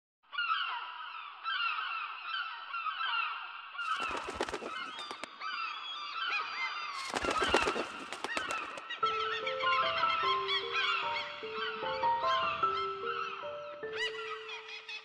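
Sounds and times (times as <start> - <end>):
gulls calling: 3.8 - 15.0.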